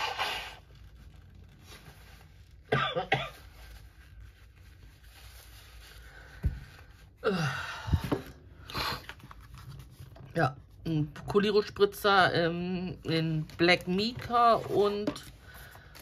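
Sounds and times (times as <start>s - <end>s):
woman coughing: 2.7s - 3.4s.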